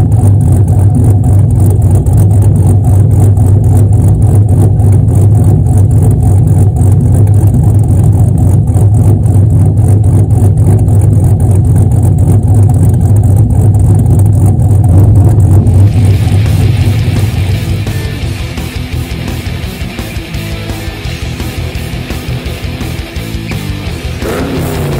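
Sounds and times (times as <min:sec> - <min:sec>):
car engine idling with choppy lope: 0:00.0 - 0:24.9
rock music: 0:15.8 - 0:24.9.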